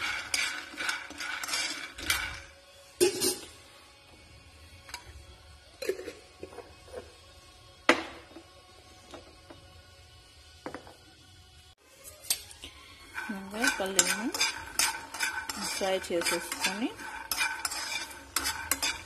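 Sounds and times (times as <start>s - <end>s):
nuts rattling in a frying pan: 0.0s - 2.6s, 12.9s - 19.0s
utensil clinking on a pan: 12.9s - 19.0s.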